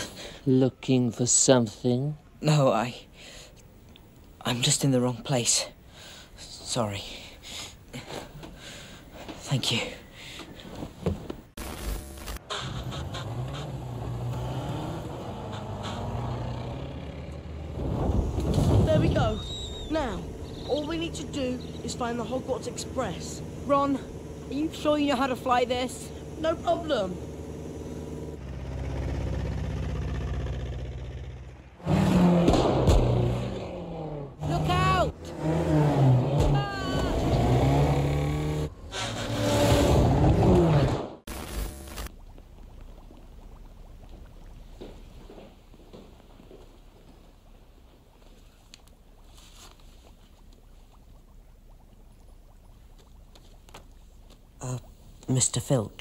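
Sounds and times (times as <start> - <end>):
small car engine running: 20.0 - 40.9
soft rustles: 48.2 - 50.9.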